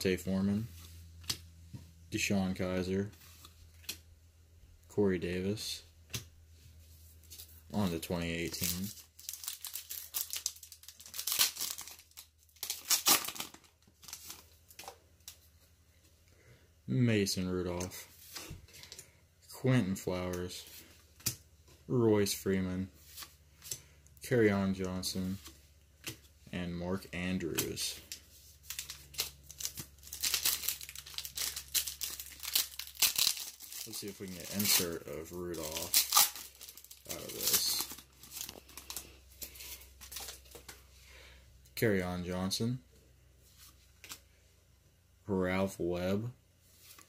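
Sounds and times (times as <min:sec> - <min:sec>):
foil wrapper crinkling and tearing: 0:08.5 - 0:14.9, 0:28.0 - 0:40.7.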